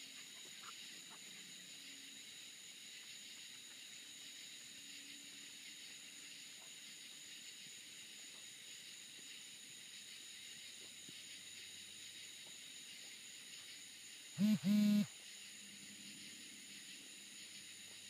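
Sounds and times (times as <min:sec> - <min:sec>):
faint high-pitched hiss: 0:00.0 - 0:18.0
faint low hum: 0:14.4 - 0:15.1.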